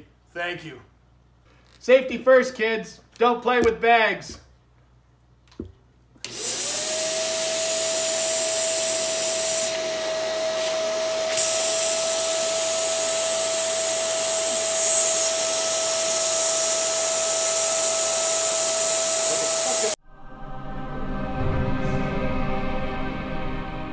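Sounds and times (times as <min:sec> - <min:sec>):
vacuum cleaner motor whine: 0:06.2 - 0:20.0.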